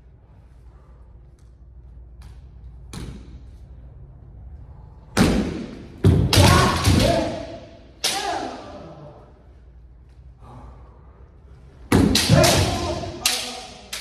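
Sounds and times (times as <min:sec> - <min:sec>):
bamboo sword strikes: 0:05.2 - 0:08.6, 0:11.9 - 0:14.0
loud kiai shouts: 0:06.3 - 0:09.2, 0:12.1 - 0:13.9
bamboo swords clicking: 0:12.0 - 0:14.0.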